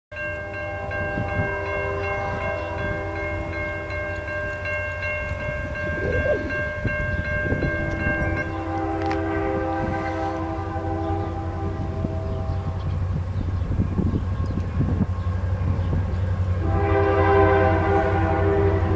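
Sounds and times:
train rumble: 0:00.1 - 0:18.9
locomotive air horn chord: 0:00.5 - 0:03.9, 0:07.9 - 0:12.8, 0:16.6 - 0:18.9.

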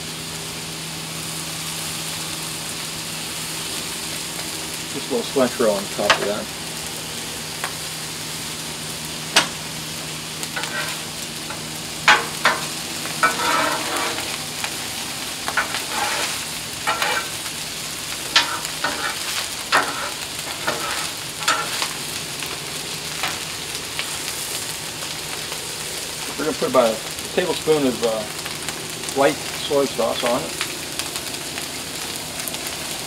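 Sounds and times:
rice sizzling on a griddle: 0:00.0 - 0:33.0
metal spatula scraping griddle: 0:10.5 - 0:14.4, 0:15.5 - 0:17.6, 0:18.2 - 0:22.2.

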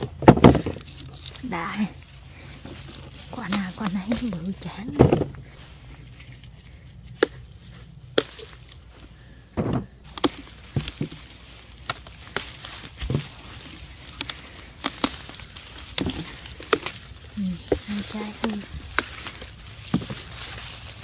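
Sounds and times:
leaves rustling: 0:00.0 - 0:21.0
pepper stems snapping: 0:02.9 - 0:04.9, 0:10.0 - 0:21.0.

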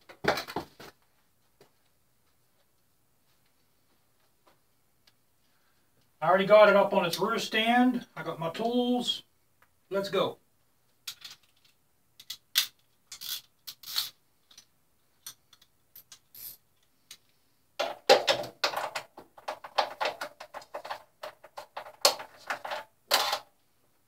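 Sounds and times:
tools clinking and scraping: 0:11.1 - 0:16.6.

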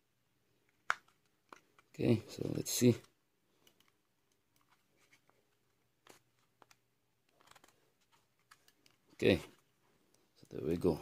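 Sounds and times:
faint clicks and taps: 0:03.0 - 0:10.6.

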